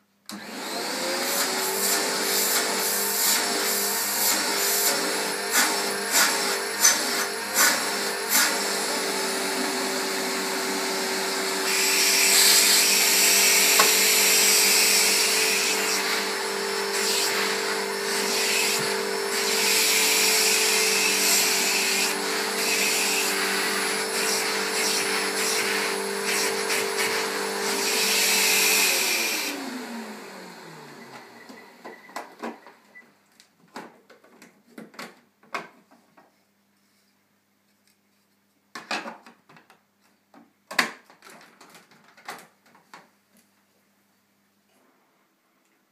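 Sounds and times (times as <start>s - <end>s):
vacuum cleaner motor running: 0.3s - 32.3s.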